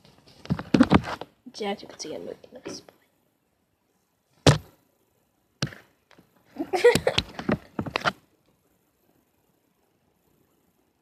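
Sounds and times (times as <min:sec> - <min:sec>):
sharp knock: 0:04.4 - 0:04.7.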